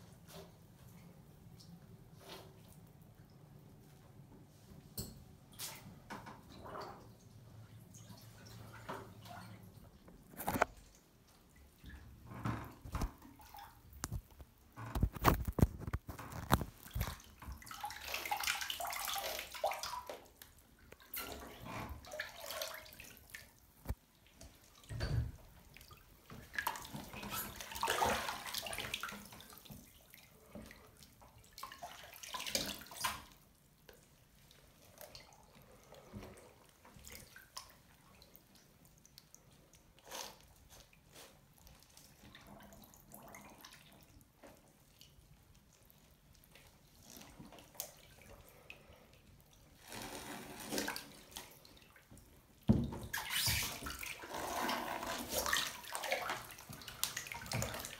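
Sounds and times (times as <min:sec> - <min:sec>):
bath water splashing: 0:15.4 - 0:57.9.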